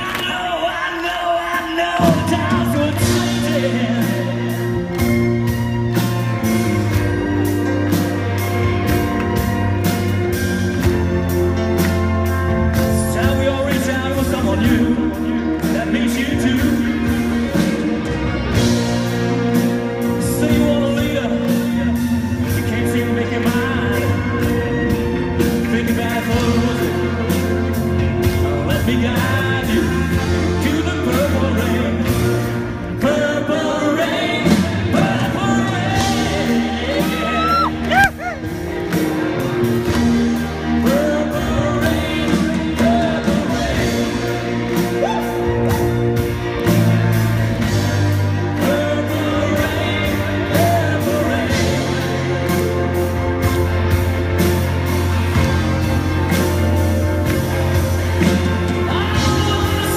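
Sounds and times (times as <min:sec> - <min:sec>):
rock band and orchestra ballad: 0:00.0 - 0:59.9
wordless singing: 0:25.4 - 0:38.4, 0:39.0 - 0:45.6, 0:46.2 - 0:53.2, 0:56.0 - 0:59.9.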